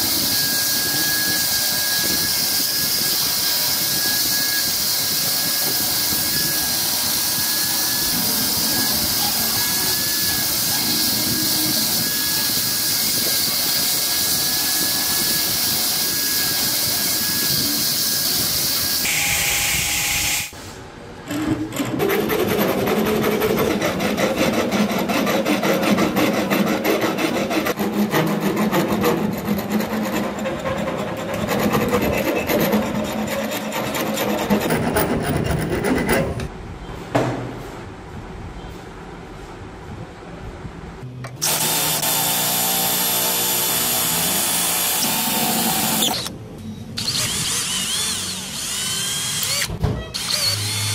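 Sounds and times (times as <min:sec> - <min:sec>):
hand file rasping wood: 0:22.0 - 0:36.4
belt grinder grinding wood: 0:47.0 - 0:50.9.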